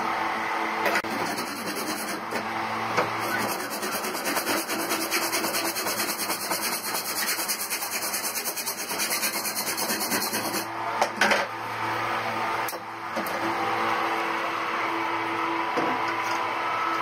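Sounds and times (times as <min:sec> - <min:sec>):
hacksaw cutting metal: 0:01.0 - 0:02.4, 0:03.2 - 0:10.7.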